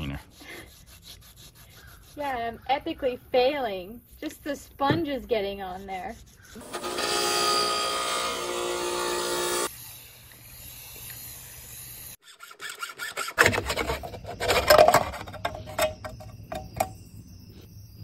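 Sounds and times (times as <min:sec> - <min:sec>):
bench grinder whine: 0:06.6 - 0:11.2
scraping of oil filter being cut: 0:12.2 - 0:16.9.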